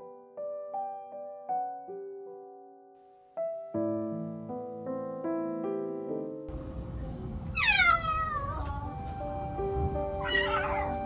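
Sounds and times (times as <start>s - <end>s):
gentle piano music: 0.0s - 11.0s
cat meowing: 7.5s - 9.0s, 10.2s - 11.0s.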